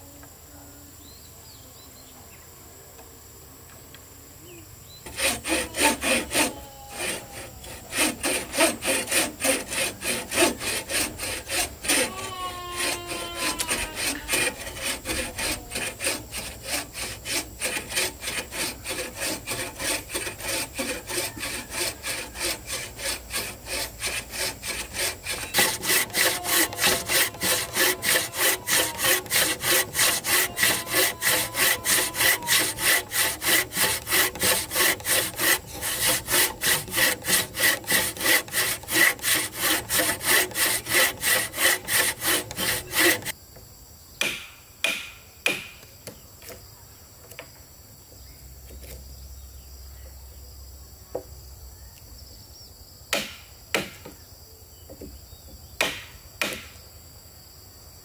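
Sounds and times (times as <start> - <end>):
faint high hum: 0.0 - 8.6
saw cutting wood: 5.1 - 43.4.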